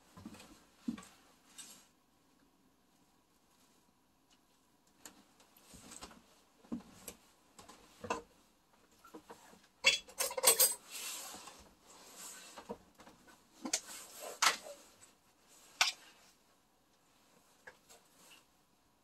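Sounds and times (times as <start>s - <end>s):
kitchenware clinking: 9.8s - 10.9s.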